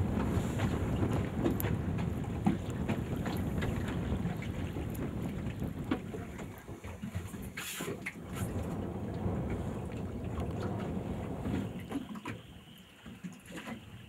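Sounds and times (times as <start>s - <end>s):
motorboat over choppy water: 0.0s - 14.0s.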